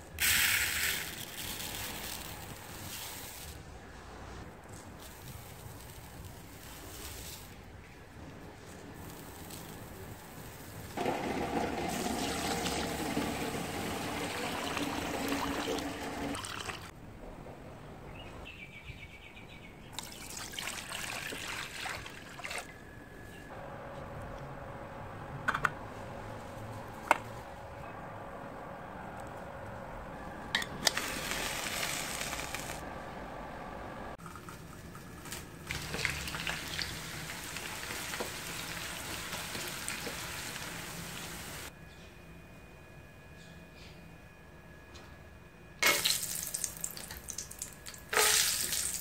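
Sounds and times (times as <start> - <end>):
water pouring into metal pot: 11.0 - 16.9, 20.0 - 22.6, 35.7 - 41.7.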